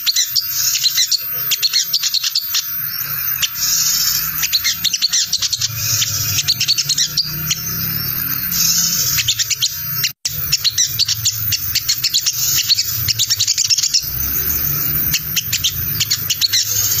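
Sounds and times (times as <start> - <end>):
sunbird scratchy chatter: 0.0 - 17.0.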